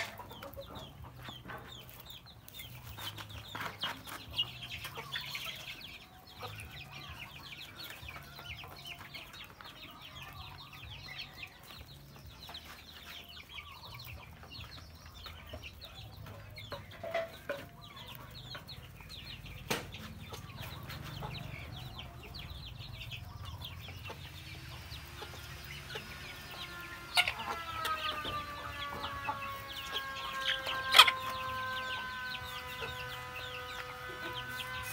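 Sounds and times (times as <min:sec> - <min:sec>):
chickens clucking: 0:00.0 - 0:34.9
chicks pecking and chirping: 0:00.0 - 0:34.9.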